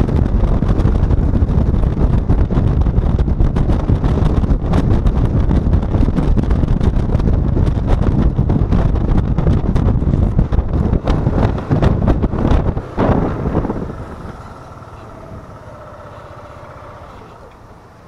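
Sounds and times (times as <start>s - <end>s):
scooter engine running: 0.0s - 18.0s
wind buffeting microphone: 0.0s - 18.0s.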